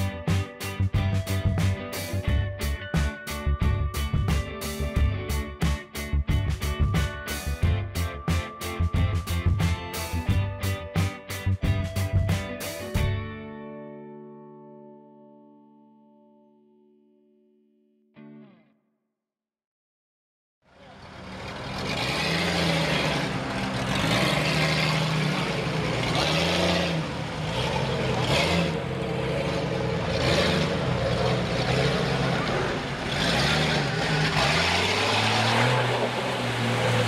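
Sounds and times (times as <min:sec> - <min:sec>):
car engine revving: 0:20.7 - 0:37.0.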